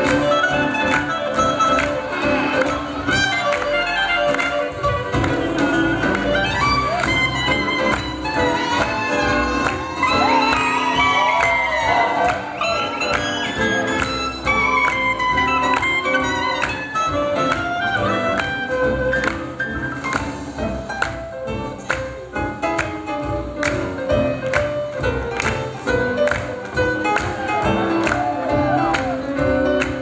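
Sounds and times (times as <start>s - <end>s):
swing jazz band playing: 0.0s - 30.0s.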